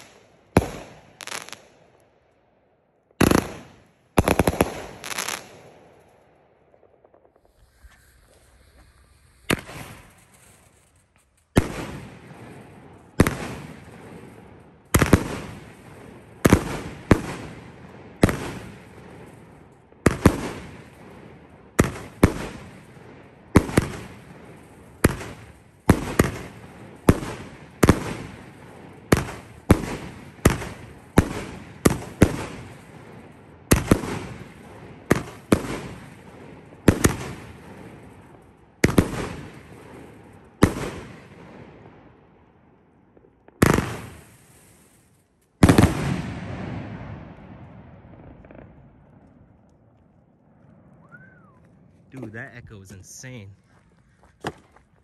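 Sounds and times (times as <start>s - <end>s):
fireworks bursting with echo: 0.0s - 2.2s, 3.0s - 53.6s.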